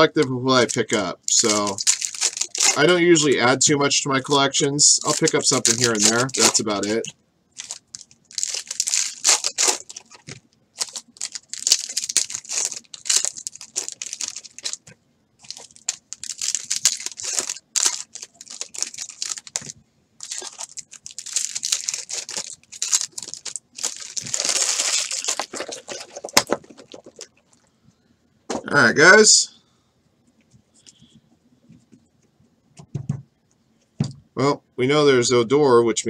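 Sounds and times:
wrappers ripping and rustling: 0.0s - 3.4s, 5.0s - 27.6s.

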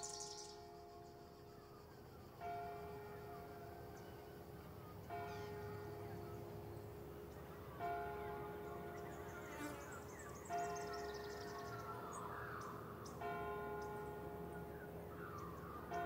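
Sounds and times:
birds chirping faintly: 0.0s - 16.0s
church bell tolling: 7.7s - 9.0s, 13.2s - 16.0s.

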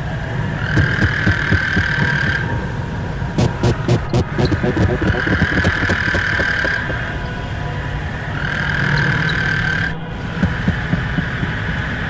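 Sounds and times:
high whine: 0.8s - 7.5s
rough low drone: 0.8s - 7.6s.

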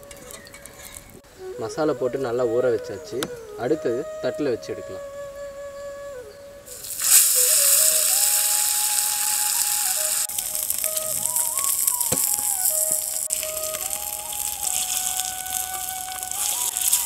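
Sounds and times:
fish sizzling in oil: 6.7s - 17.0s.

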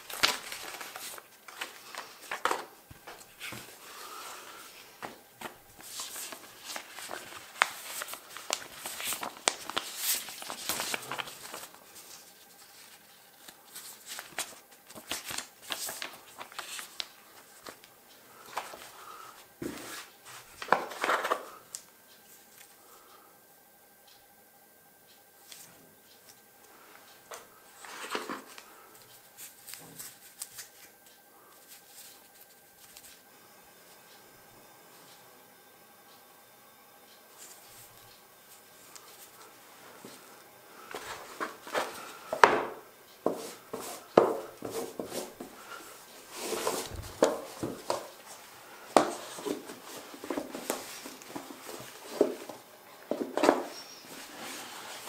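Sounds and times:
paper and card rustling: 0.0s - 21.7s, 27.3s - 33.2s, 40.8s - 55.0s.

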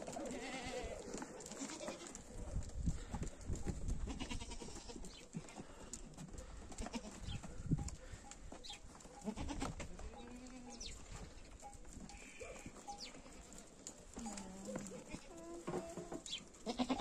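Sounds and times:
goats bleating: 0.0s - 2.3s, 4.0s - 5.6s, 6.8s - 7.4s, 9.2s - 11.5s, 14.2s - 17.0s
knocks and shuffling: 4.7s - 16.6s.

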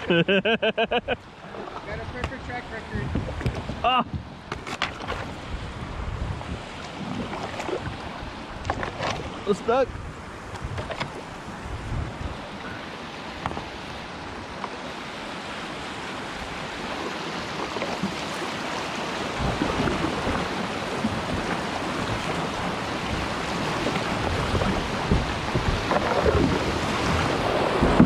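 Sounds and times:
whitewater rushing: 11.2s - 28.0s.

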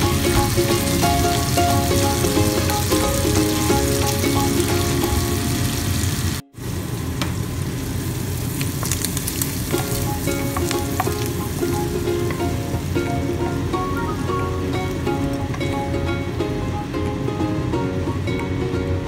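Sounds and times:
background music: 0.0s - 6.3s, 9.8s - 19.0s
shrimp sizzling in a frying pan: 0.0s - 13.0s.

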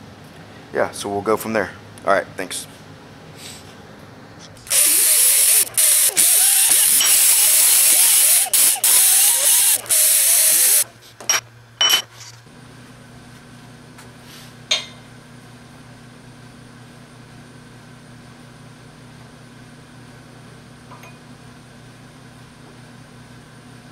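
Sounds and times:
compressed air blow gun hissing: 4.7s - 10.8s.

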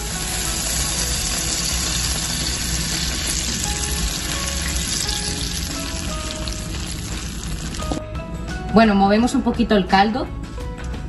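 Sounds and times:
stock sizzling in hot pan: 0.0s - 8.0s.

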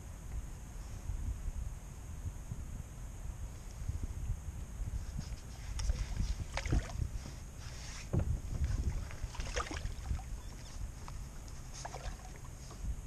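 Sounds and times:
wind rumble on microphone: 0.0s - 13.0s
fish splashing at the surface: 9.2s - 10.2s.

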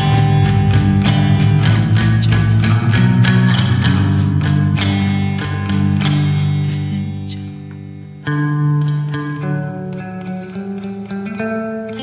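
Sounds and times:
sharp struck notes: 0.0s - 8.3s
held low notes: 0.0s - 9.0s.

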